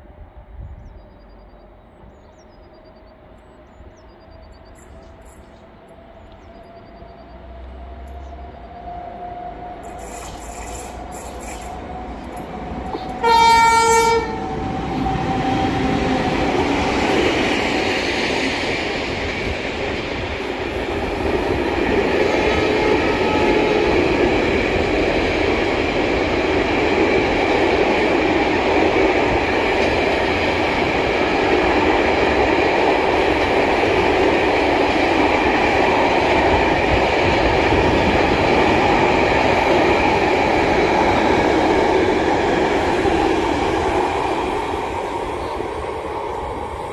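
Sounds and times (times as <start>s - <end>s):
freight train rolling past: 0.0s - 46.9s
locomotive horn blast: 12.9s - 14.5s, 22.3s - 24.2s.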